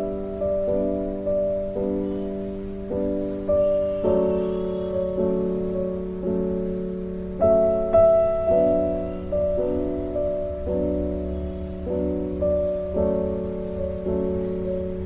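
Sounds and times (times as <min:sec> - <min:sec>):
slow gentle piano music: 0:00.0 - 0:15.0.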